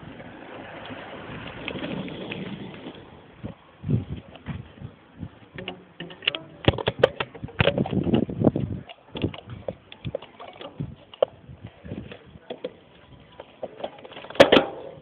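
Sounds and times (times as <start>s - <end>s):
bicycle knocks and rattles: 5.5s - 12.8s, 13.4s - 15.0s.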